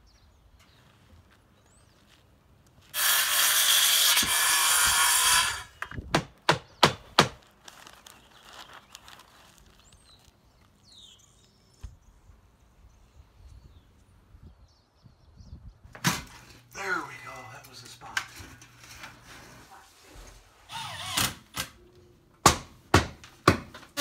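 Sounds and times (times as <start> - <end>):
hammer blows on shingle roof: 5.9 - 7.4, 22.4 - 24.0.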